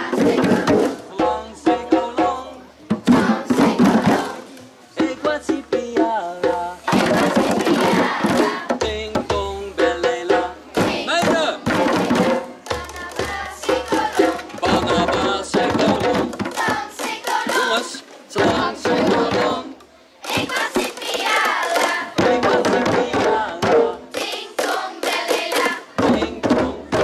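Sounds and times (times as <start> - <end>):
children singing together: 0.0 - 1.0, 2.6 - 4.6, 6.8 - 8.8, 10.8 - 27.0
djembe drums: 0.0 - 27.0.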